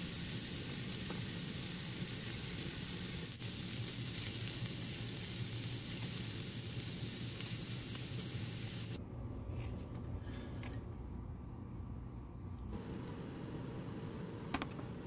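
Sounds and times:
mushrooms sizzling in a frying pan: 0:00.0 - 0:09.0.

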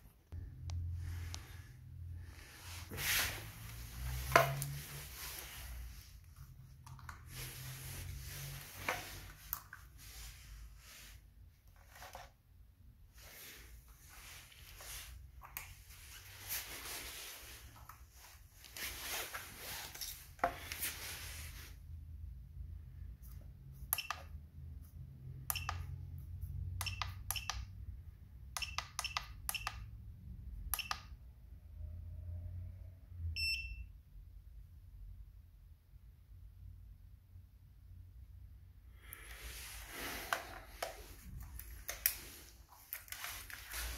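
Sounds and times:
cables rustling and scraping: 0:02.3 - 0:12.4, 0:13.2 - 0:21.8, 0:39.2 - 0:43.9.

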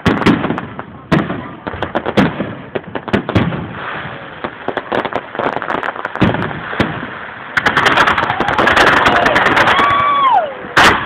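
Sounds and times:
fireworks bangs and crackles: 0:00.0 - 0:11.0.

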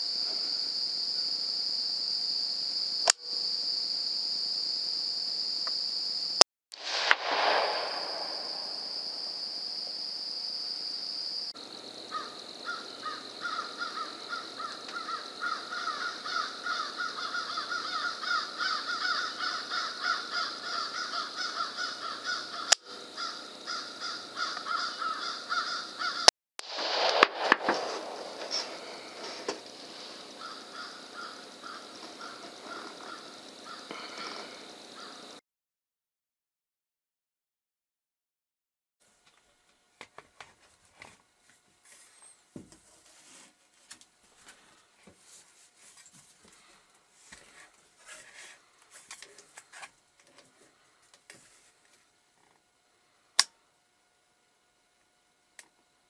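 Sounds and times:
night insects trilling: 0:00.0 - 0:35.4
rifle shots with echo: 0:06.8 - 0:09.1, 0:26.6 - 0:29.6.

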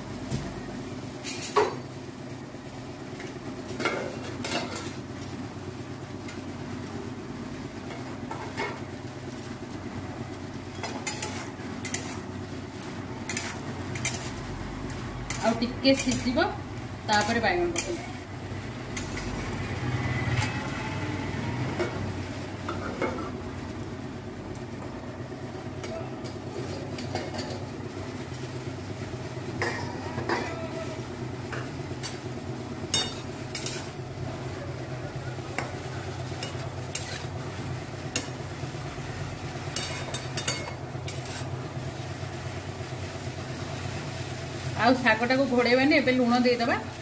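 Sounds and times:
spatula scraping pan: 0:10.8 - 0:12.3, 0:13.2 - 0:14.5, 0:15.2 - 0:18.3, 0:32.9 - 0:34.0, 0:35.6 - 0:37.5, 0:39.7 - 0:41.6.

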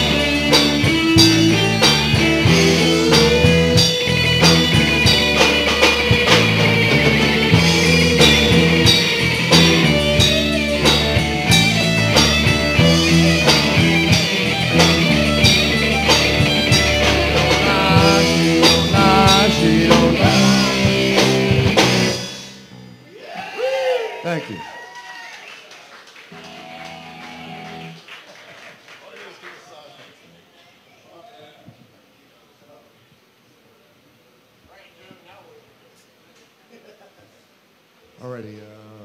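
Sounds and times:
drum kit: 0:00.0 - 0:23.0
electric guitar lead: 0:00.0 - 0:23.1, 0:26.3 - 0:28.0
bass: 0:00.0 - 0:24.5, 0:26.3 - 0:28.0.

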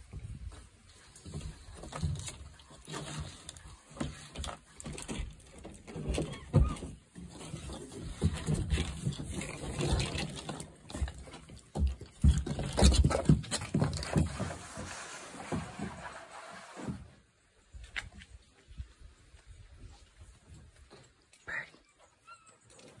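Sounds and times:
low bumps on plastic deck: 0:00.0 - 0:16.2
monkeys shuffling and rustling: 0:00.0 - 0:16.9.

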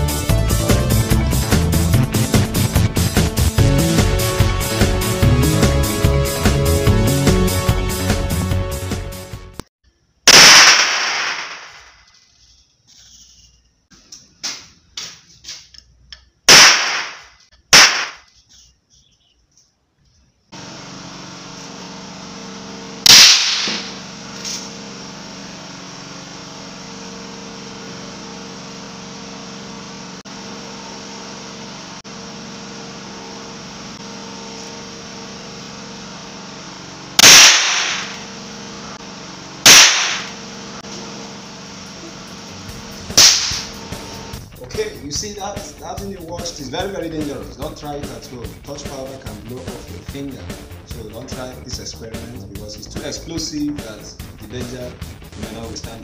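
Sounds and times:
sharp detonation cracks: 0:10.3 - 0:12.0, 0:16.5 - 0:18.2, 0:23.1 - 0:24.0, 0:37.2 - 0:38.2, 0:39.7 - 0:40.4, 0:43.2 - 0:43.8.

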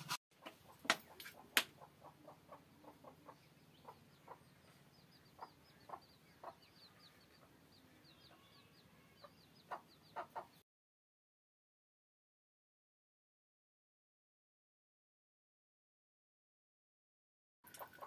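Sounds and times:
chickens clucking: 0:00.0 - 0:10.6, 0:17.7 - 0:18.0
small birds chirping: 0:00.4 - 0:10.6, 0:17.7 - 0:18.0.

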